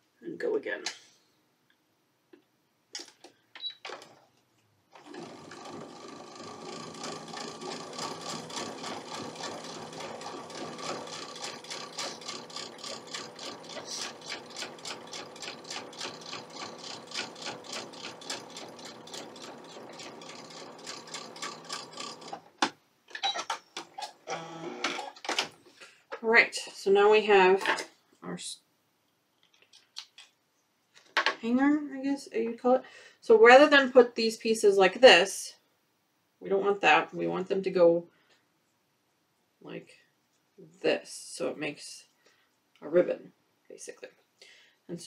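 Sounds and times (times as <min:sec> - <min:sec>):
sewing machine stitching: 0:04.9 - 0:22.6
sewing machine clicks: 0:05.0 - 0:22.4.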